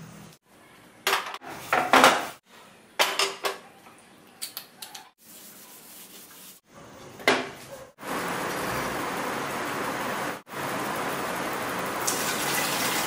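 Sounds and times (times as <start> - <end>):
pans clattering on grate: 1.1 - 2.4, 3.0 - 3.6, 7.2 - 7.7.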